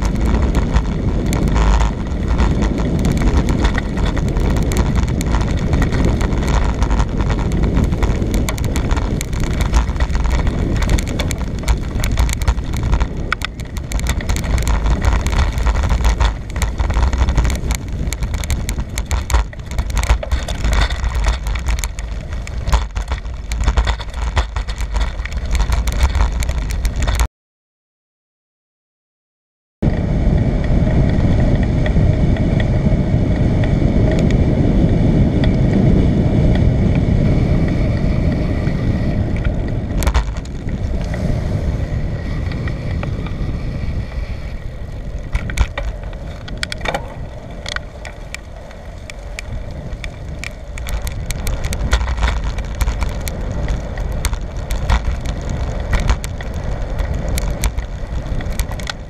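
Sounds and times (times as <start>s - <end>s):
bicycle tyres rolling: 0.0s - 27.3s, 29.8s - 59.0s
clicks and rattles: 0.0s - 27.3s, 38.3s - 41.2s, 44.4s - 59.0s
wind rumble on microphone: 0.0s - 27.3s, 29.8s - 59.0s.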